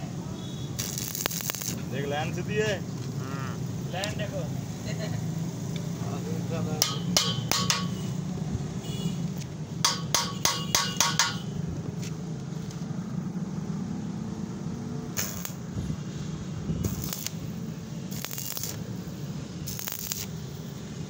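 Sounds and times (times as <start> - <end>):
hammer tapping steel pipe: 6.8 - 8.0, 9.8 - 11.4.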